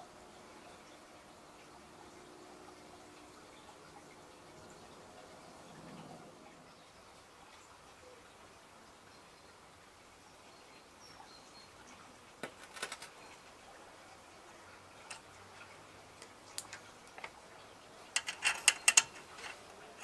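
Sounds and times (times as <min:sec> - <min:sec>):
metal parts clicking and tapping: 0:12.4 - 0:13.1, 0:18.1 - 0:20.0
loud clicks of valve fitting: 0:18.2 - 0:19.6.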